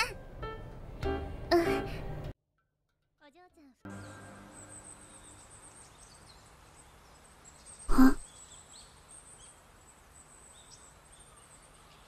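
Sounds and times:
bird chirps: 0:03.9 - 0:12.0.

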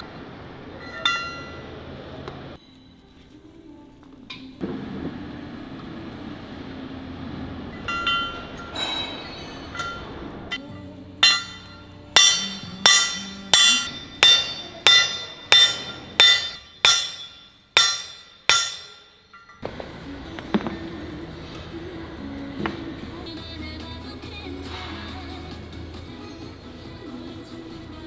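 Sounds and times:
hammer striking steel: 0:00.8 - 0:01.7, 0:07.7 - 0:19.7.

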